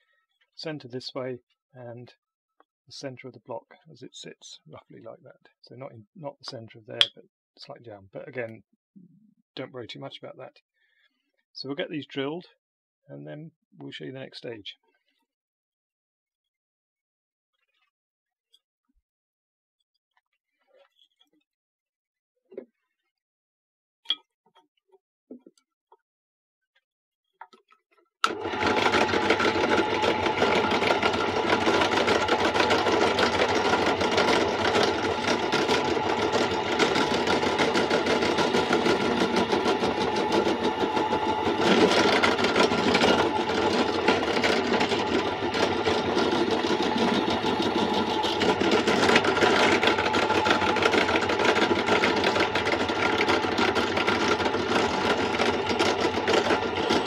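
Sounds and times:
drill press boring into wood: 0:28.2 - 0:57.0.

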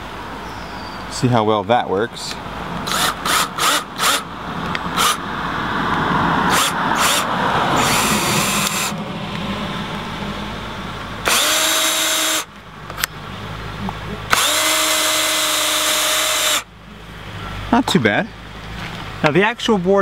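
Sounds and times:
cordless drill driving screws: 0:02.9 - 0:04.3, 0:05.0 - 0:05.2, 0:06.5 - 0:08.9, 0:11.2 - 0:12.5, 0:14.3 - 0:16.7.

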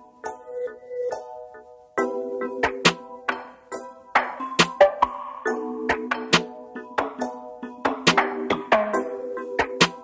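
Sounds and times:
music with percussive hits: 0:04.2 - 0:10.0.

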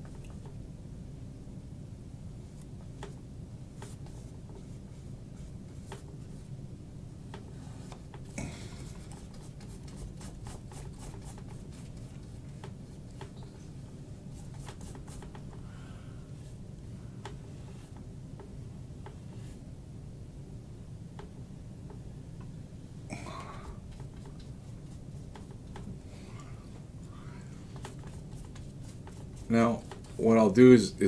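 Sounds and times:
steady low hum: 0:00.0 - 0:31.0
paintbrush strokes on canvas: 0:03.8 - 0:06.5, 0:08.8 - 0:15.6, 0:23.8 - 0:25.9, 0:27.6 - 0:30.4.

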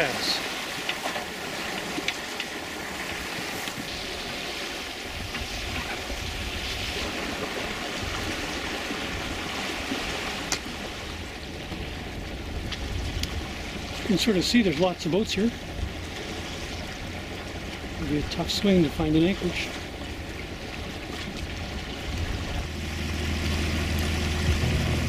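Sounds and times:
water rushing along hull: 0:00.0 - 0:25.0
wind noise: 0:20.7 - 0:25.0.

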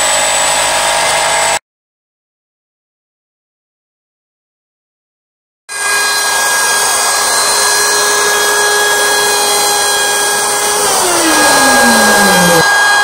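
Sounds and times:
electric wood router whining: 0:09.6 - 0:12.8.

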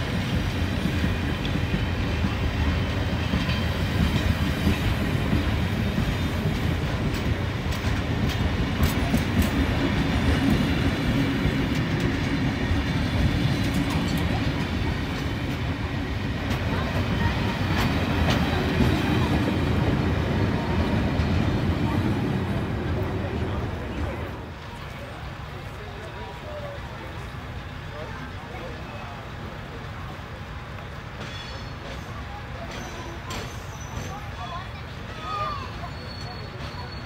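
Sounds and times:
train wheels rumbling on rail: 0:00.0 - 0:37.0
wheels clicking over rail joints: 0:00.1 - 0:23.2, 0:30.7 - 0:37.0.

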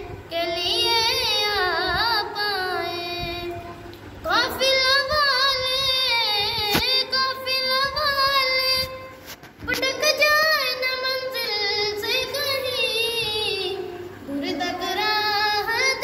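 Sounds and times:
boy singing into microphone: 0:00.0 - 0:16.0
sharp click: 0:06.7 - 0:07.0.

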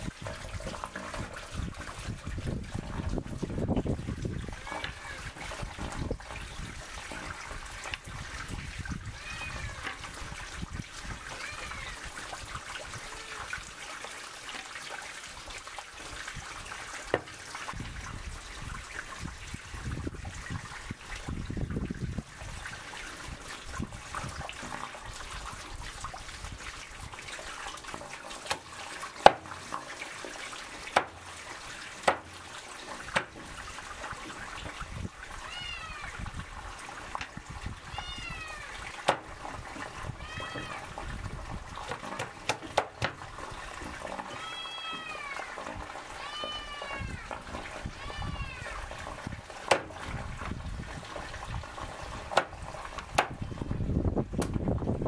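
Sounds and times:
water trickling: 0:00.0 - 0:55.0
animal giving short high calls: 0:38.0 - 0:38.8, 0:44.3 - 0:45.5.

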